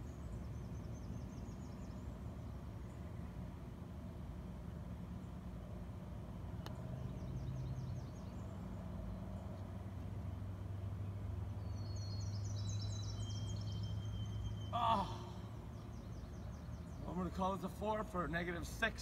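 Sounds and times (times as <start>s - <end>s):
low hum: 0.0s - 19.0s
songbirds trilling: 0.0s - 19.0s
faint click: 6.6s - 6.8s.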